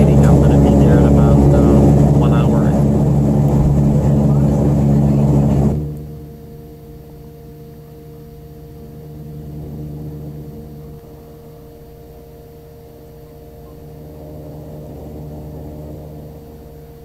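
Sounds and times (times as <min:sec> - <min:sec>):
plane engines humming in cabin: 0:00.0 - 0:17.0.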